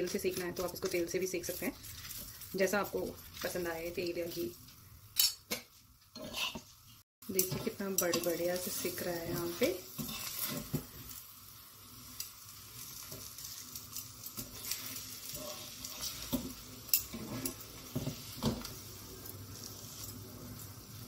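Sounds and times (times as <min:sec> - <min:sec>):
flatbread sizzling in a pan: 0:00.0 - 0:21.0
metal spatula scraping pan: 0:06.2 - 0:10.9, 0:14.4 - 0:18.7.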